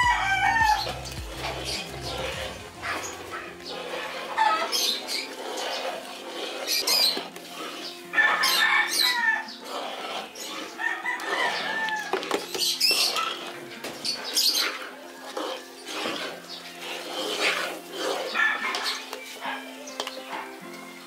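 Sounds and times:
rooster crowing: 0.0s - 1.0s, 8.1s - 9.6s, 10.7s - 12.3s, 18.3s - 18.8s
chickens clucking: 0.0s - 21.0s.

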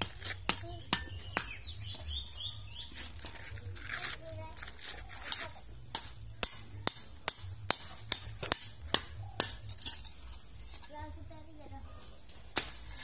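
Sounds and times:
hand hoe chopping sandy ground: 3.2s - 9.8s.

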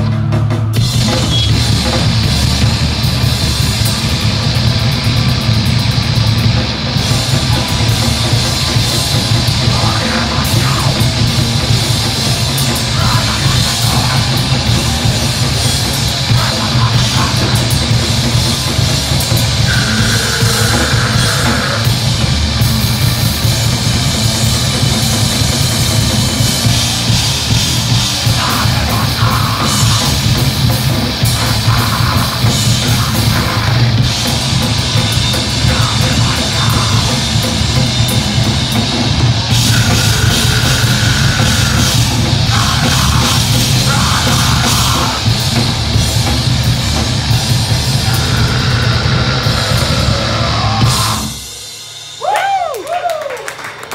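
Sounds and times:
distorted electric guitar: 0.0s - 52.3s
heavy rock band playing live: 0.0s - 53.1s
pounding drum kit: 0.0s - 53.9s
person singing into microphone: 9.6s - 11.4s, 12.6s - 18.0s, 28.2s - 30.4s, 31.2s - 34.1s, 35.3s - 37.6s, 39.5s - 45.4s.

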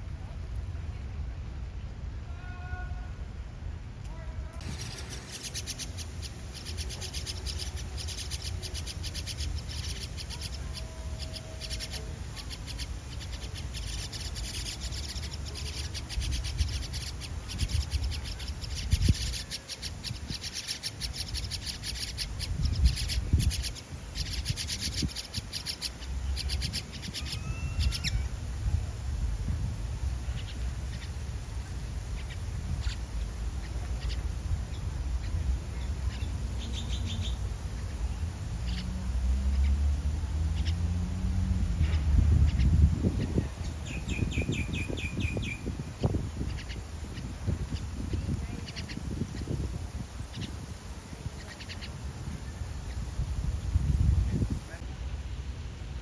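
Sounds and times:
nestlings begging chirps: 4.6s - 28.3s, 32.2s - 38.1s, 38.7s - 38.9s, 41.9s - 49.6s, 50.3s - 50.6s, 51.4s - 52.0s.

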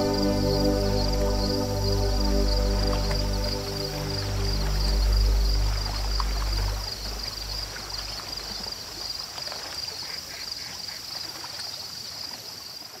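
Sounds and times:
low background music: 0.0s - 8.2s
steady high-pitched trill: 0.0s - 8.4s
gently moving water: 0.0s - 10.1s.

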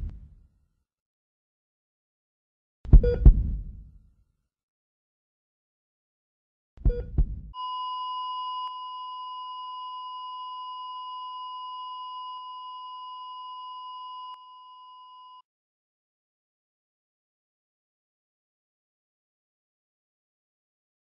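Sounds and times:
heartbeat thumps: 2.9s - 4.0s, 6.8s - 7.6s
heart monitor flatline tone: 3.0s - 3.5s, 6.9s - 15.4s.

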